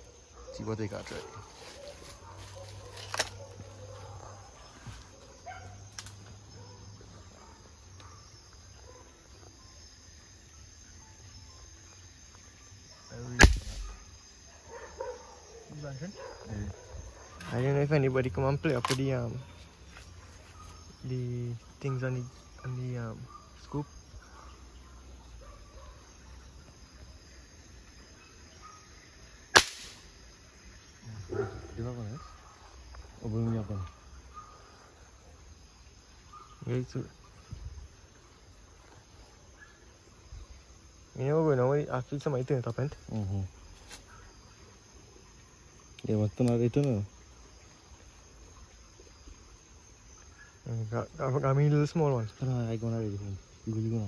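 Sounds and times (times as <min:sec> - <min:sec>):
air rifle shot: 0:13.4 - 0:14.0, 0:29.6 - 0:30.0.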